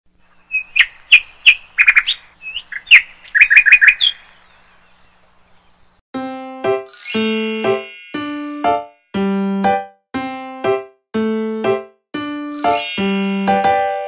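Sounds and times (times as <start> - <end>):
bird chirping: 0.2 - 6.0
keyboard melody of chime-like notes: 6.2 - 14.0.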